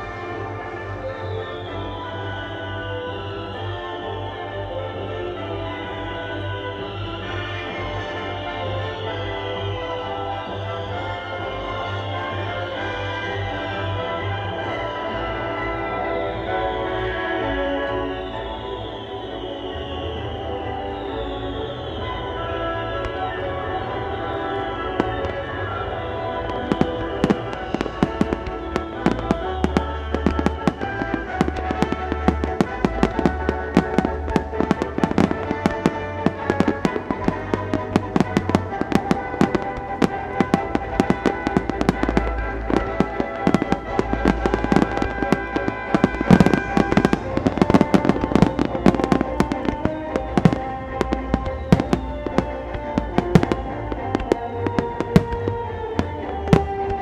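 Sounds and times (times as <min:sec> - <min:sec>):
music playing: 0:00.0 - 0:57.0
fireworks bangs: 0:13.4 - 0:57.0.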